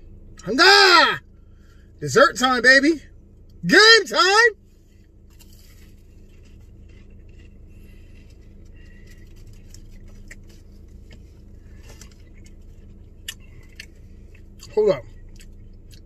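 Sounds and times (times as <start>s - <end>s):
low car interior hum: 0.0s - 16.0s
soft chewing: 4.7s - 16.0s.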